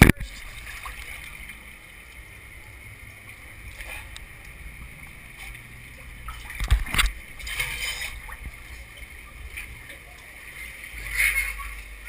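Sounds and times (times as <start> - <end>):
water running and sloshing: 0.0 - 12.0.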